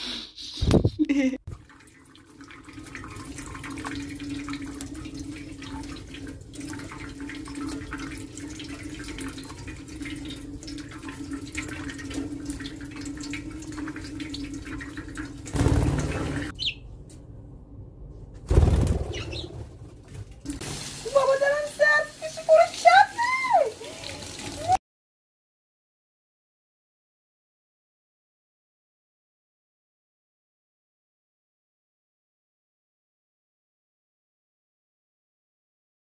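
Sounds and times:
tap water running onto steel: 0:01.5 - 0:16.5, 0:20.1 - 0:24.8
bird splashing in water: 0:01.7 - 0:16.6.

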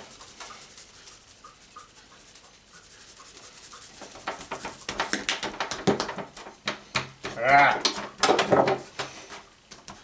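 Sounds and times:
seasoning shaker rattling: 0:00.0 - 0:06.6.

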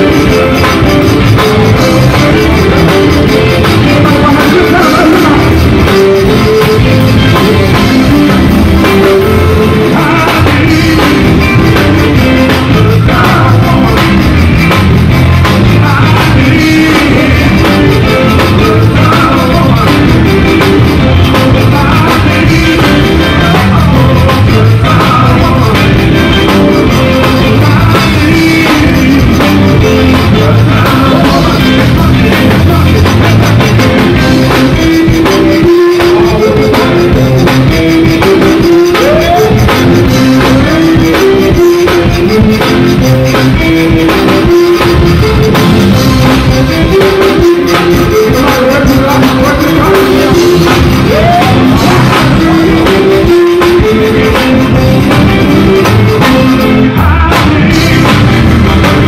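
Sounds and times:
accordion: 0:00.0 - 0:59.0
live band playing: 0:00.0 - 0:59.0
person singing lead vocal: 0:00.0 - 0:59.0.

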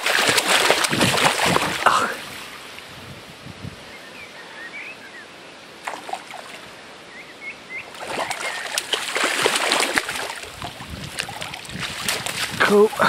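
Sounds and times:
fish splashing in water: 0:00.0 - 0:02.3, 0:05.8 - 0:06.6, 0:07.9 - 0:12.6.

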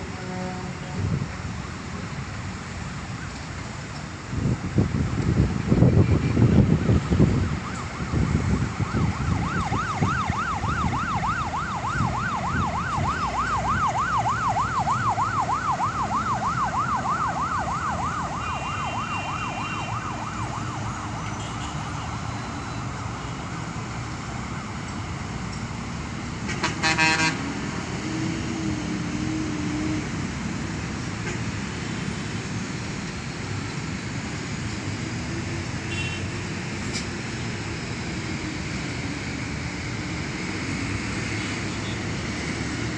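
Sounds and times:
city traffic noise: 0:00.0 - 0:42.9
siren yelping: 0:07.4 - 0:22.9
vehicle horn blast: 0:26.5 - 0:27.4, 0:35.9 - 0:36.4.

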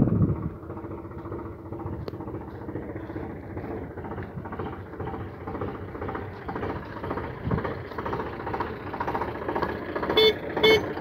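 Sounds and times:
tractor diesel engine running: 0:00.0 - 0:11.0
horn toot: 0:10.1 - 0:10.9.

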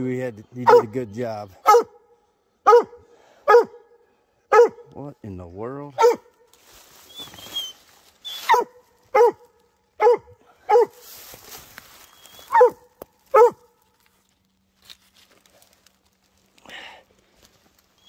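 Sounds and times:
dog barking: 0:00.6 - 0:01.0, 0:01.6 - 0:02.0, 0:02.6 - 0:05.0, 0:06.0 - 0:06.4, 0:08.4 - 0:11.0, 0:12.5 - 0:13.7
dry leaves rustling underfoot: 0:06.0 - 0:18.0.

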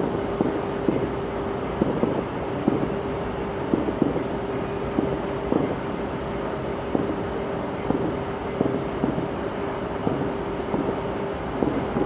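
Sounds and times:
steady rumbling hum: 0:00.0 - 0:12.0
distant muffled firework thuds: 0:01.8 - 0:02.9, 0:03.7 - 0:04.3, 0:04.9 - 0:05.8, 0:07.8 - 0:09.3, 0:10.0 - 0:11.0, 0:11.6 - 0:12.0.

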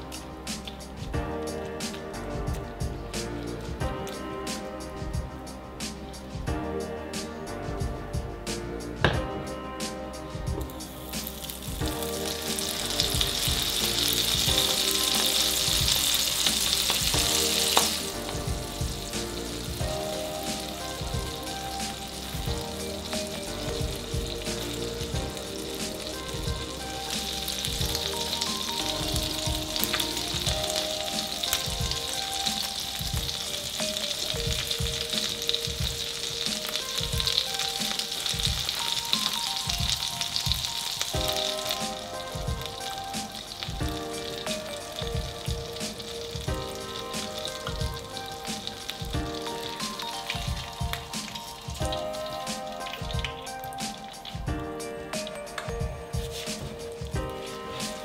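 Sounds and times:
background music with steady beat: 0:00.0 - 0:58.0
butter sizzling in a frying pan: 0:10.9 - 0:54.5.

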